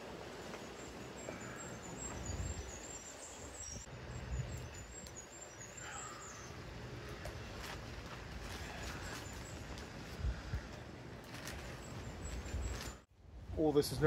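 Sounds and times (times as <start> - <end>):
bird calling: 0.5 - 7.6.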